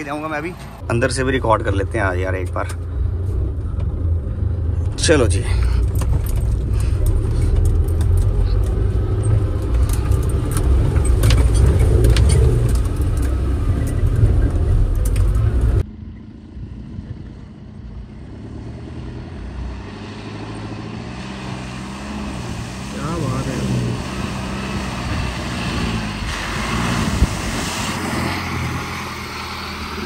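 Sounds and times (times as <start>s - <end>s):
vehicle rumbling off-road: 0.0s - 30.0s
clatter and rattling: 4.8s - 15.8s.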